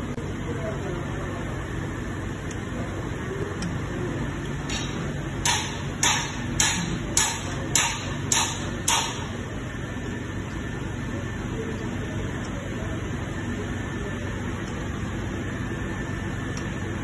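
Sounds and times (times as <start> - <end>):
steady low hum: 0.0 - 17.0
sharp metallic knocks: 4.7 - 9.3.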